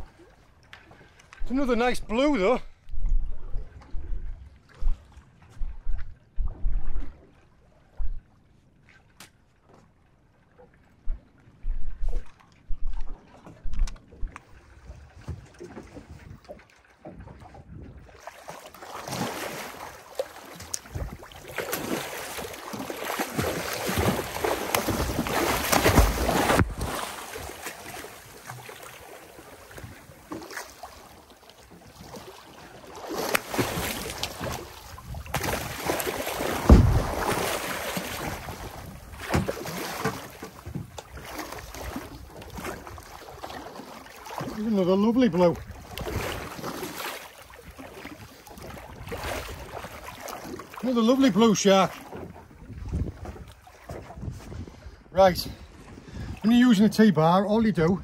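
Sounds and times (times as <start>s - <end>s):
water splashing against boat hull: 8.9s - 58.0s
wind on microphone: 11.6s - 18.2s, 20.8s - 21.3s, 34.4s - 35.9s, 36.6s - 37.4s, 52.3s - 56.4s
sharp water slaps: 18.2s - 44.7s, 45.8s - 50.9s
shark thrashing at surface: 23.2s - 27.6s, 33.1s - 38.6s.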